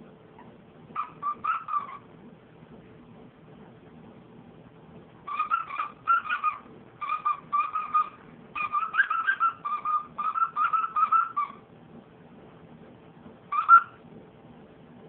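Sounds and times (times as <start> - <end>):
dog toy squeaking: 1.0 - 2.1, 5.3 - 11.6, 13.5 - 14.0.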